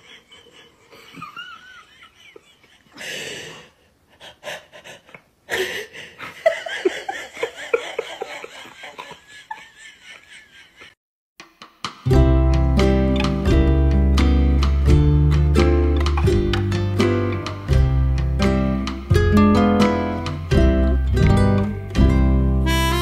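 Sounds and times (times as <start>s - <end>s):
person laughing: 0.0s - 3.2s, 5.5s - 11.0s.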